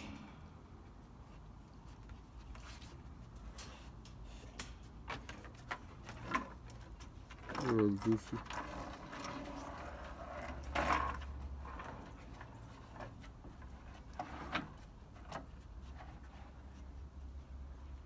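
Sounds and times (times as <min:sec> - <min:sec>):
chain clinking on wooden boards: 0:05.0 - 0:15.4.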